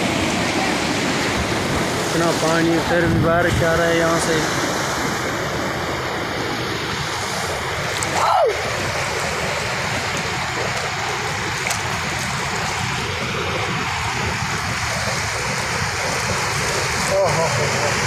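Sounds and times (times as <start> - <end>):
floodwater rushing: 0.0 - 18.0.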